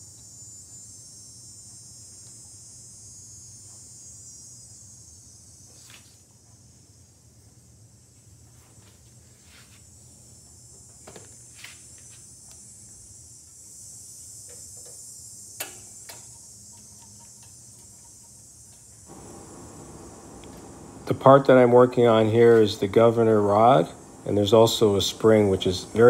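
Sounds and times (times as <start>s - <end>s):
faint hiss: 0.0s - 26.0s.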